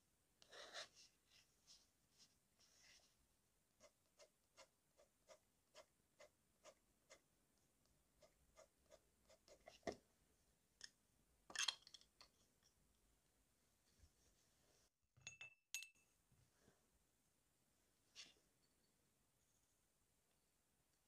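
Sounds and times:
pen nib scratching on paper: 3.8 - 7.3, 8.2 - 9.9.

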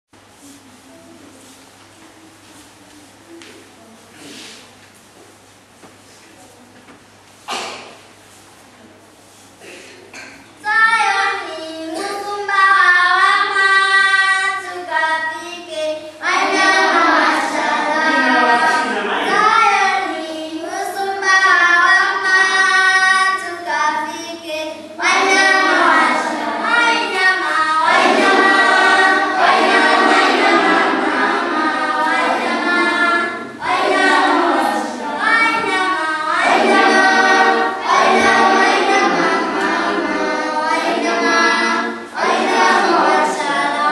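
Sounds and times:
children's choir singing: 9.6 - 43.9.

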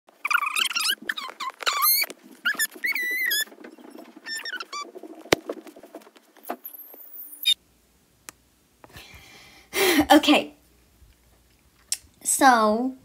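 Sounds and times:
squeaky gibberish voice chattering: 0.2 - 4.9
high-pitched squeal: 0.3 - 5.2.

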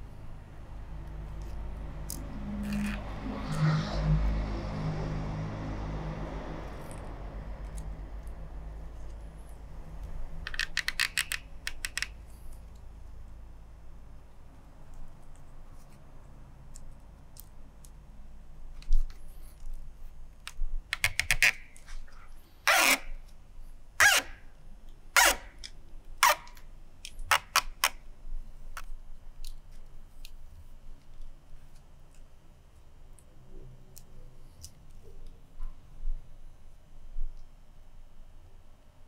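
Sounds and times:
cane strands scraping and clicking: 1.0 - 4.1, 6.6 - 12.9
scratchy swishes: 2.4 - 5.3.

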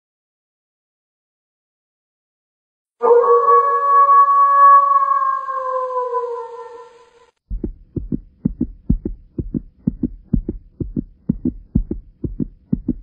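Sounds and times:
heartbeat thumps: 7.5 - 13.0.

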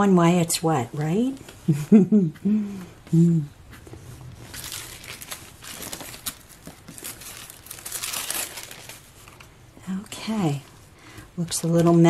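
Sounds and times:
paper rustling: 3.8 - 9.5.

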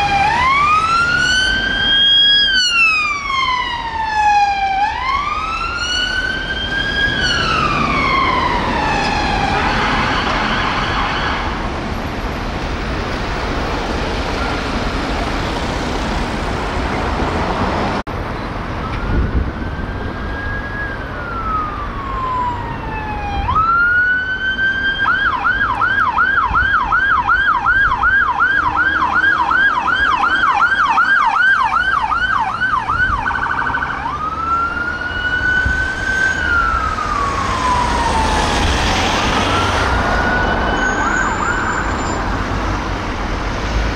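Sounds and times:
ambulance siren wail and yelp: 0.0 - 11.7, 18.7 - 43.2
police siren wailing: 0.0 - 11.7, 18.7 - 43.2
traffic noise: 0.0 - 43.9.

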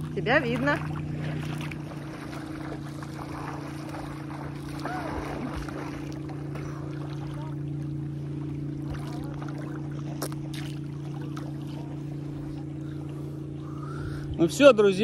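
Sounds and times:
low engine drone: 0.0 - 15.0.

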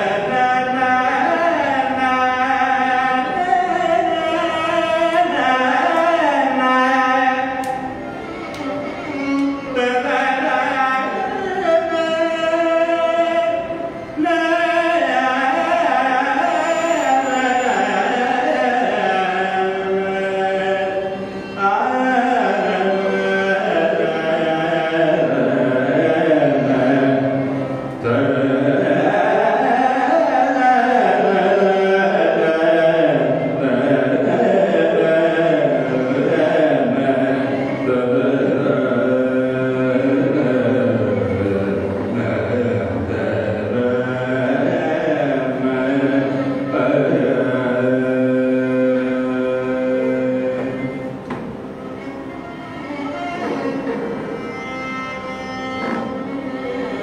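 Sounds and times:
man singing: 0.0 - 8.1, 8.8 - 53.7
violin accompaniment: 0.0 - 57.0.

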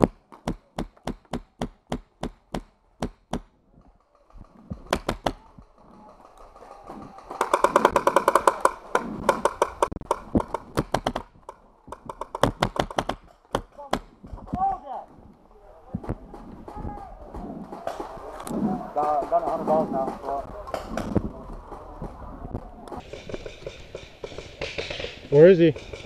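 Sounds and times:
paintball markers firing: 4.7 - 5.6, 6.8 - 14.4.

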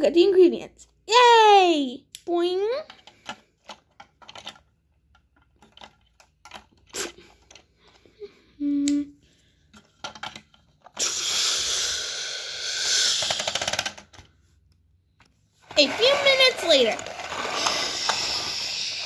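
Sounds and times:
plastic toys clicking: 2.8 - 8.0, 9.7 - 11.0, 12.8 - 14.3, 15.8 - 19.0
toy truck rattling: 3.0 - 7.8, 9.8 - 11.0, 12.8 - 14.4, 15.6 - 19.0.

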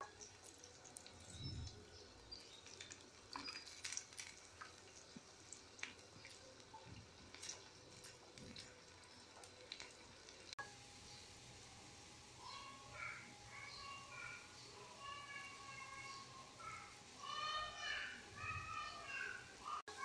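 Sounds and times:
water heating ticks and pops: 0.0 - 10.6.

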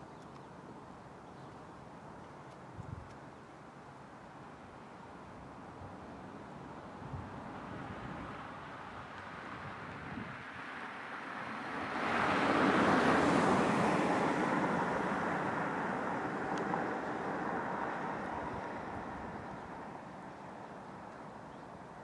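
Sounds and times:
vehicle passing by: 9.3 - 20.1.

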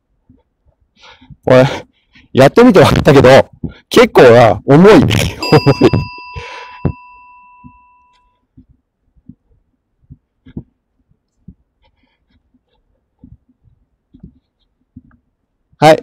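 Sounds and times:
soft footsteps: 6.8 - 15.5.

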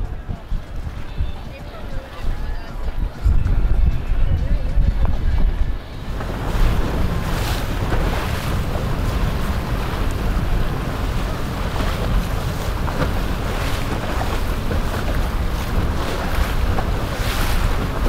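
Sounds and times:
boat engine low rumble: 0.0 - 18.0
wind buffeting microphone: 0.0 - 18.0
water rushing: 5.2 - 18.0
water splash: 6.1 - 18.0.

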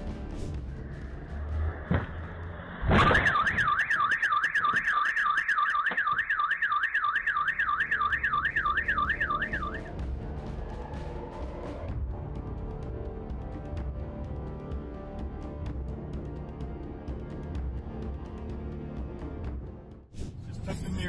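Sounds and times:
car alarm warbling: 3.0 - 10.0.

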